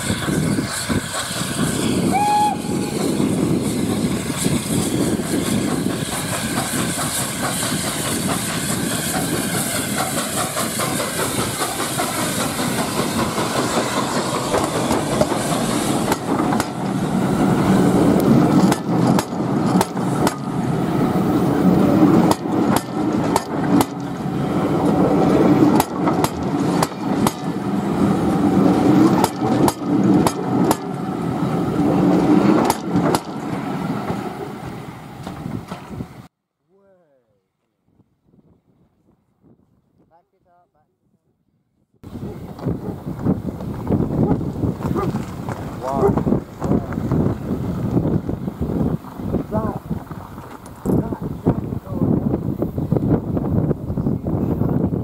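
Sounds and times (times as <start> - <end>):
steam locomotive rushing hiss: 0.0 - 36.2
train coaches rumbling: 0.0 - 36.3, 42.0 - 55.0
wheels clicking over rail joints: 22.2 - 27.7.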